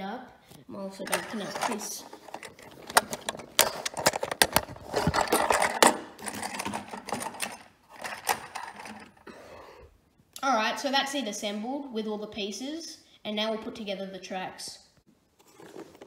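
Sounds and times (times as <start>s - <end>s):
plastic toy train cars clattering: 1.0s - 9.2s.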